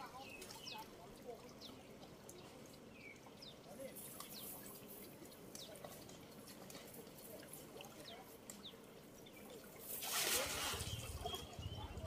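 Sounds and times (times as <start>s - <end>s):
shallow stream trickling: 0.0s - 12.0s.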